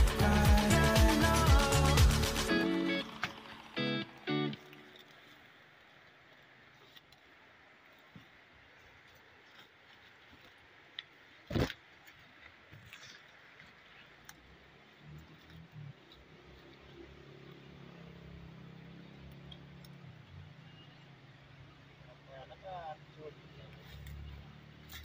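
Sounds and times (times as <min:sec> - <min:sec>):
rustling of leaves: 0:00.0 - 0:25.0.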